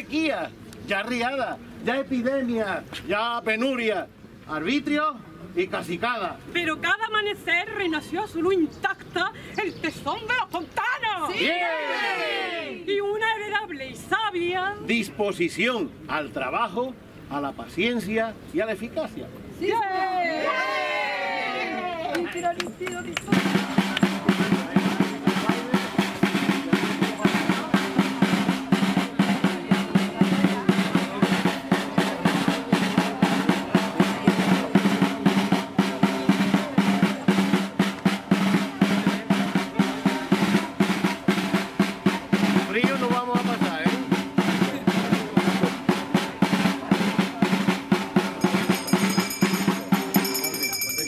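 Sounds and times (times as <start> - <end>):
drum beaten in quick rhythm: 22.2 - 51.0.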